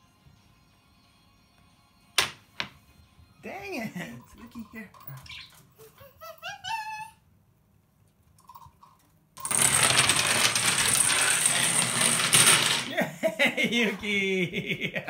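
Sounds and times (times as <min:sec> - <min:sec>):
dominoes toppling on wooden floor: 0:09.4 - 0:13.0.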